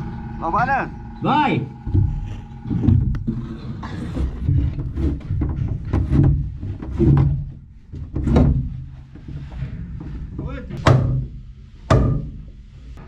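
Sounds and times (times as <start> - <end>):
low rumble: 0.0 - 6.6
knocks and thumps on wood: 1.9 - 3.4, 4.2 - 9.4, 10.3 - 12.4.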